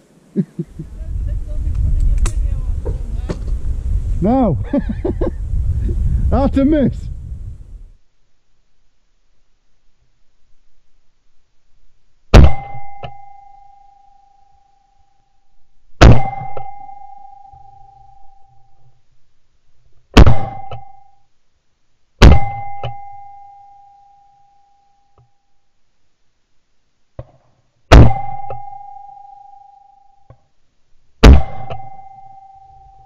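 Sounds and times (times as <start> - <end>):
shotgun shots: 12.4 - 12.8, 16.0 - 16.6, 20.2 - 20.7, 22.2 - 22.6, 27.9 - 28.4, 31.2 - 32.0
ringing tone: 12.5 - 15.6, 16.3 - 19.0, 20.5 - 21.3, 22.4 - 25.5, 28.1 - 30.3, 31.6 - 33.0.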